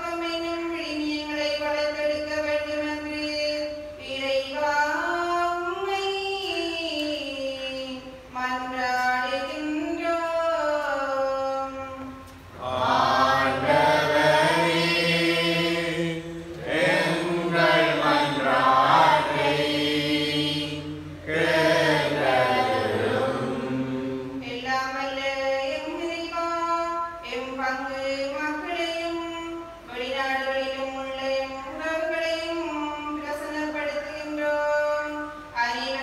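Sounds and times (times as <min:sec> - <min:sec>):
woman chanting: 0:00.0 - 0:36.0
congregation singing response: 0:12.6 - 0:24.4.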